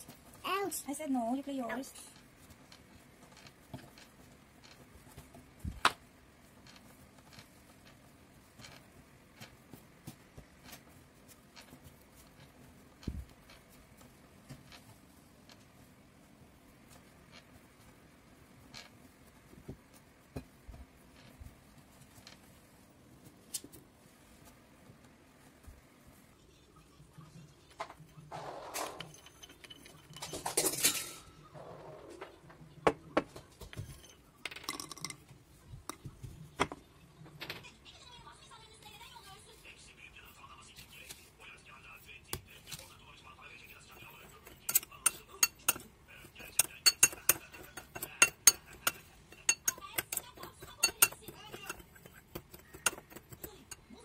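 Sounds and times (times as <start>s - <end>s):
hands working dough: 0.0s - 54.0s
nuts clattering into wooden mortar: 34.4s - 35.2s
nuts rattling in ceramic bowl: 34.4s - 35.2s, 44.7s - 53.9s.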